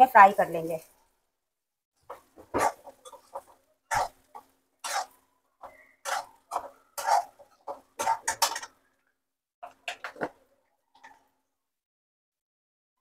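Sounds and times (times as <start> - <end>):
spoon scraping and knocking pan: 2.0 - 8.9, 9.6 - 11.2.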